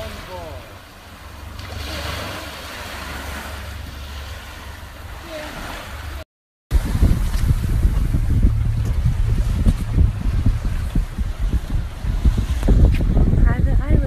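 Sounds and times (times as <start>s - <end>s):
moving boat: 0.0s - 14.0s
wind rumble on microphone: 2.9s - 14.0s.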